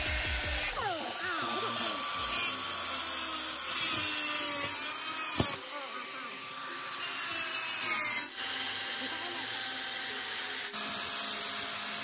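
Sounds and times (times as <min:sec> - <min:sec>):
electric cutter grinding with whine: 0:00.0 - 0:12.0.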